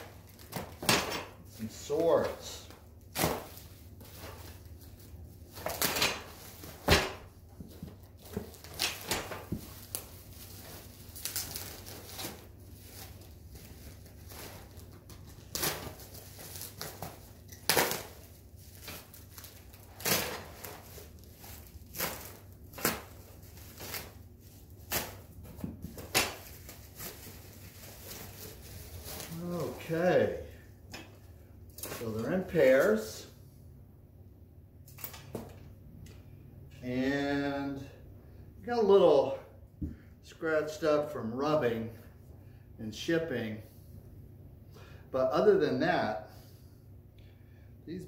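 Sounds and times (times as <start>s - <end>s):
plastic wrapping crinkling: 0.0s - 0.8s, 7.7s - 30.7s.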